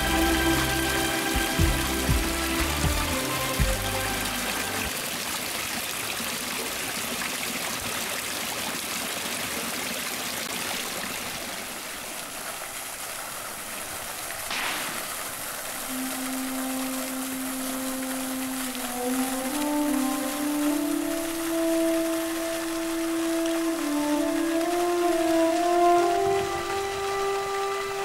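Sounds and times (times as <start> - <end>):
low musical tone: 0.0 - 4.9, 15.8 - 28.0
fountain water splashing: 0.0 - 28.0.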